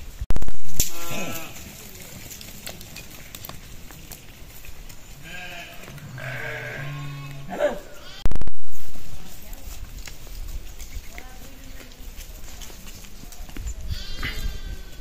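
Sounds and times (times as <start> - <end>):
sheep bleating: 0.8 - 1.8, 5.2 - 9.2, 13.9 - 15.0.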